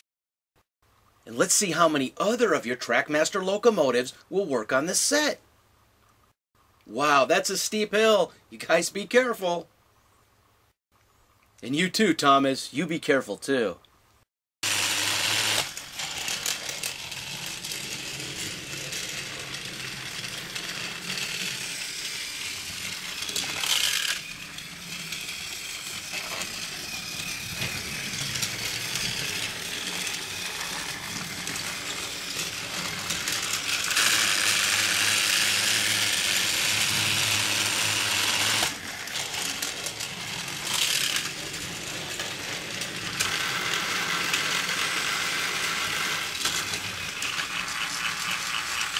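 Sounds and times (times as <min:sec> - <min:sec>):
toy train motors whirring and rattling: 0:14.6 - 0:48.9.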